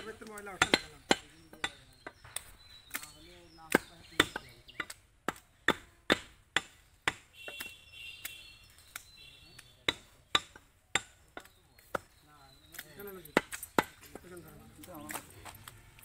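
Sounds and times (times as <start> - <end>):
knife chopping meat on wood block: 3.7 - 12.1.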